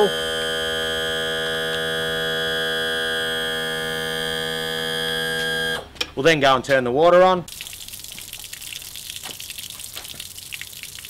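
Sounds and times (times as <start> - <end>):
electric trim motor humming: 0.0 - 5.9.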